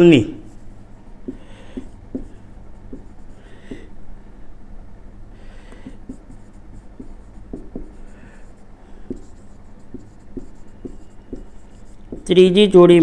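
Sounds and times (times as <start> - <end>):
marker writing on whiteboard: 0.0 - 4.0, 5.5 - 12.6
low steady hum: 0.0 - 13.0.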